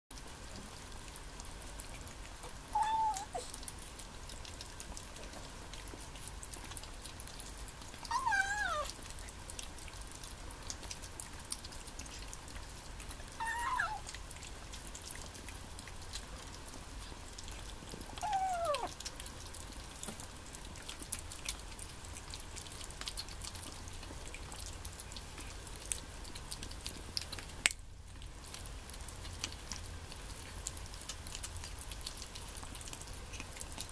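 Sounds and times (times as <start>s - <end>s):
kittens chewing and licking: 0.1s - 33.9s
kitten meows: 2.7s - 3.4s, 8.1s - 9.0s, 13.4s - 14.1s, 18.1s - 19.0s.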